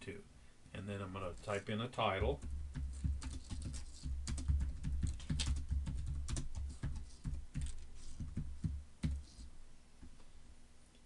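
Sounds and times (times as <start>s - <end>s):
computer keyboard typing: 2.2s - 9.4s.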